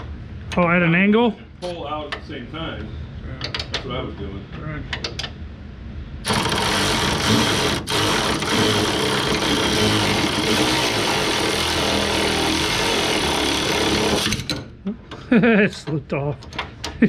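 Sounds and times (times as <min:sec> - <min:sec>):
power tool running: 0:06.2 - 0:14.7.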